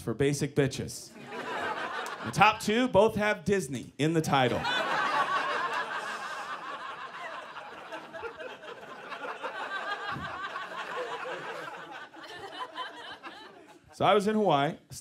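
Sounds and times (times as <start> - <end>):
audience laughing: 1.2 - 2.6, 4.5 - 14.0.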